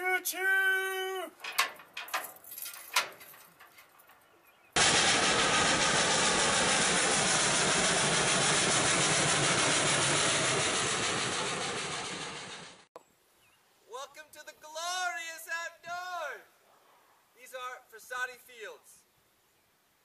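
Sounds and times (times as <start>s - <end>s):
steam locomotive passing: 4.8s - 12.9s.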